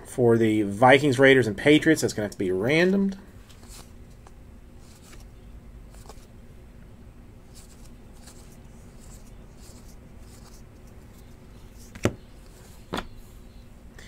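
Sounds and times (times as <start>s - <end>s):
cards sliding and rustling: 3.4s - 5.3s, 5.9s - 6.3s, 7.5s - 13.2s.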